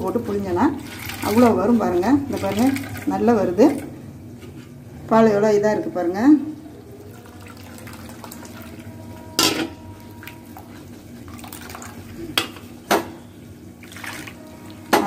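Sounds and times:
liquid trickling: 0:00.7 - 0:03.2, 0:06.5 - 0:09.0, 0:10.0 - 0:12.2, 0:13.8 - 0:14.9.

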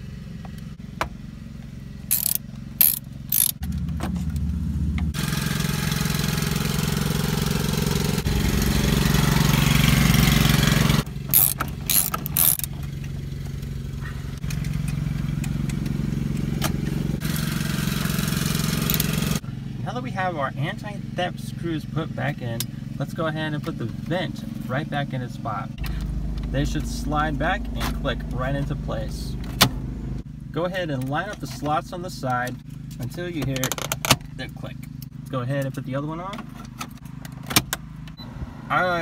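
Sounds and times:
low engine hum: 0:00.0 - 0:39.0
ratchet clicking: 0:02.1 - 0:03.6, 0:11.3 - 0:12.8, 0:18.8 - 0:19.1.

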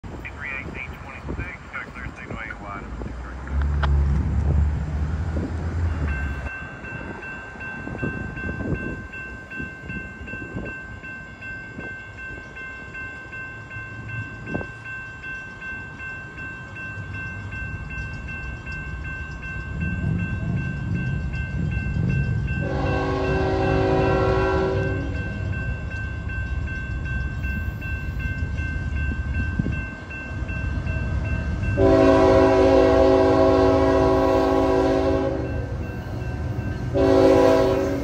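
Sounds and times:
diesel locomotive rumble: 0:00.0 - 0:10.7, 0:12.2 - 0:38.0
crossing warning bell ringing: 0:05.4 - 0:38.0
locomotive air horn: 0:22.6 - 0:25.2, 0:31.8 - 0:35.6, 0:36.9 - 0:38.0.

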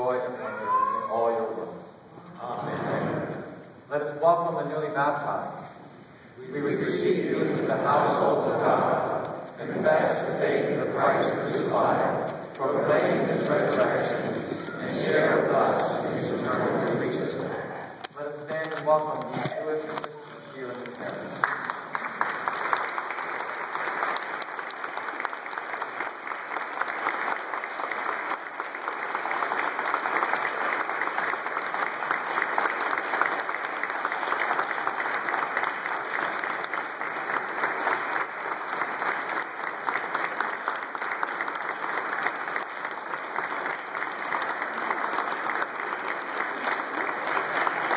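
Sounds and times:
crowd applauding: 0:21.3 - 0:47.9.

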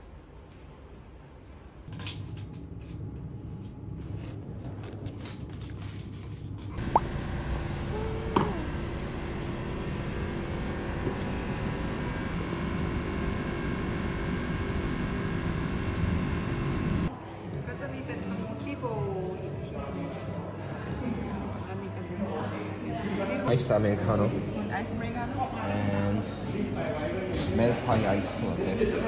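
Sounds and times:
street traffic noise: 0:06.8 - 0:17.1.

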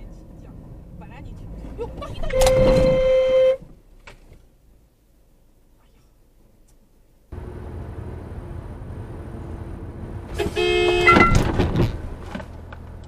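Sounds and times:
road and engine noise: 0:00.0 - 0:13.0
car horn: 0:02.2 - 0:03.7, 0:10.3 - 0:11.6.

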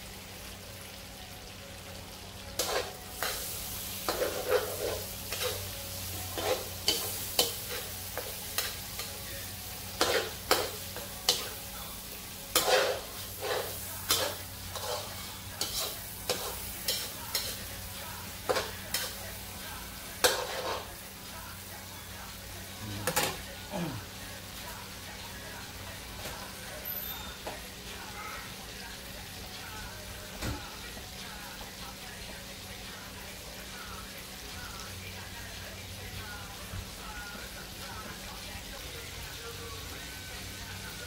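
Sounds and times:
low sizzle of frying: 0:00.0 - 0:41.0
metal spatula scraping wok: 0:02.6 - 0:09.1, 0:12.5 - 0:17.6, 0:20.2 - 0:20.9.

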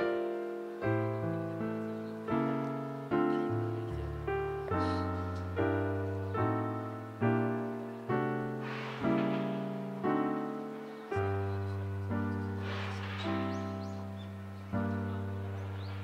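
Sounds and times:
slow piano music: 0:00.0 - 0:16.0.

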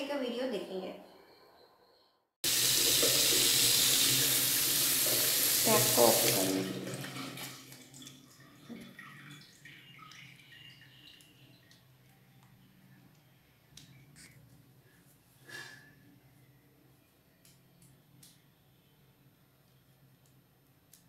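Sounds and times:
tap running into washbasin: 0:02.5 - 0:11.9.

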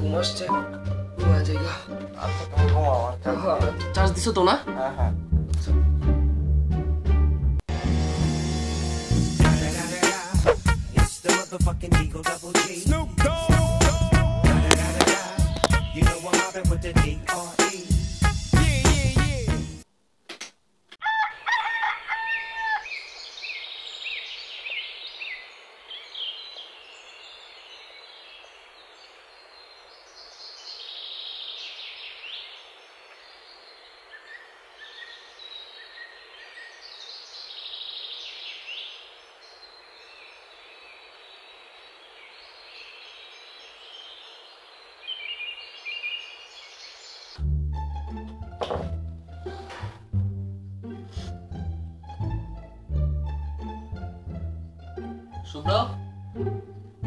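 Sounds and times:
small birds chirping: 0:14.6 - 0:16.0, 0:22.7 - 0:47.4
rooster crowing: 0:21.0 - 0:23.0.

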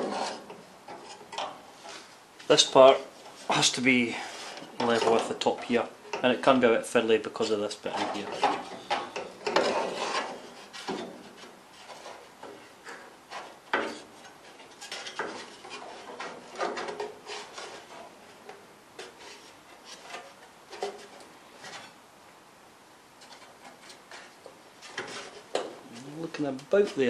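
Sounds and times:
metal scraping and knocking on metal: 0:00.0 - 0:06.7, 0:07.3 - 0:18.2.

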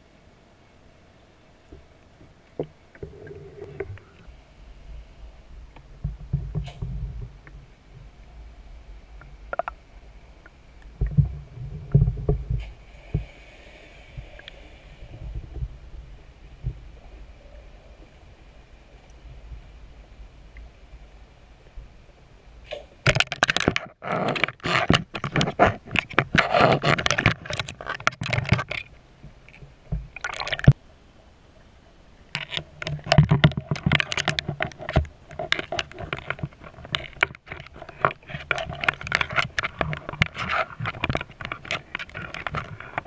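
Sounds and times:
underwater scraping and knocking: 0:01.7 - 0:04.3, 0:05.7 - 0:08.2, 0:09.1 - 0:09.8, 0:10.4 - 0:13.4, 0:14.1 - 0:18.1, 0:22.7 - 0:30.8, 0:32.2 - 0:43.0.

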